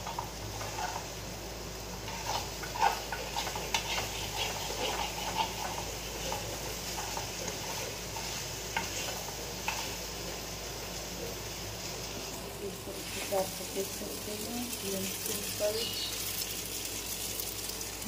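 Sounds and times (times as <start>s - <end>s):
light sizzle: 0.0s - 18.0s
metal spoon scraping frying pan: 0.1s - 1.1s, 2.1s - 10.0s.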